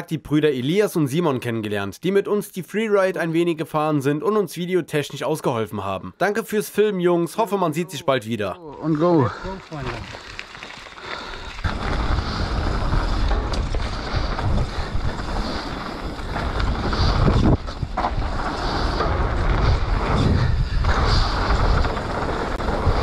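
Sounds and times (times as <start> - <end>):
bike tyres rolling: 8.7 - 23.0
wind buffeting microphone: 11.3 - 23.0.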